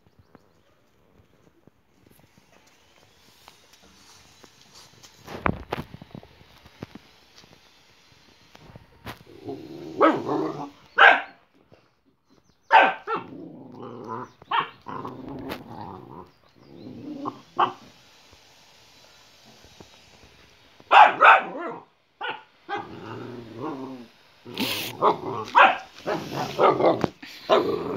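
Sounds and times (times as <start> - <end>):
dogs growling: 9.3 - 10.8, 13.1 - 17.6, 22.7 - 27.9
dogs barking: 9.9 - 11.4, 12.7 - 13.4, 14.4 - 15.5, 17.2 - 18.0, 20.9 - 23.0, 24.5 - 27.8.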